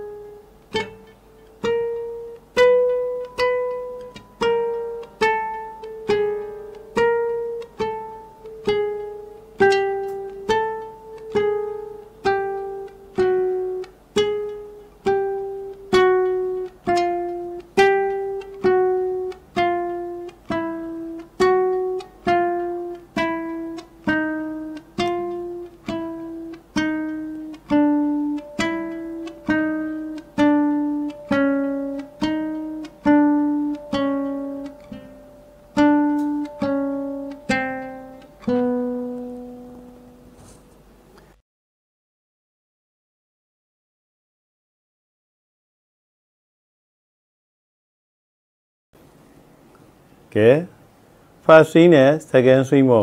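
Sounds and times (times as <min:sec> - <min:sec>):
classical guitar plucked notes: 0:00.0 - 0:41.3.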